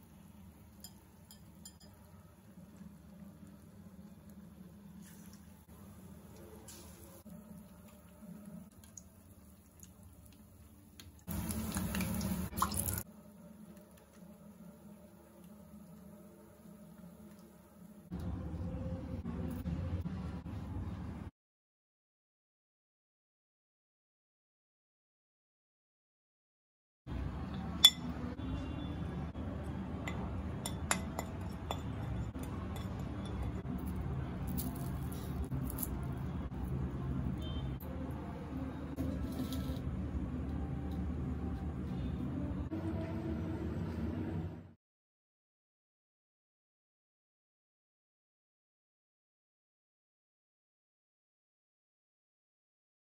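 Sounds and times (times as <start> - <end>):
hot oil sizzling: 0.0 - 18.1
spoon scraping ceramic plate: 39.0 - 39.9.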